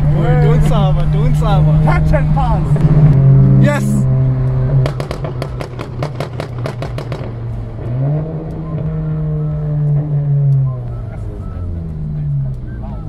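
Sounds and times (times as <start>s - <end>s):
car engine revving: 0.0s - 13.0s
exhaust pops and crackles: 4.4s - 8.6s.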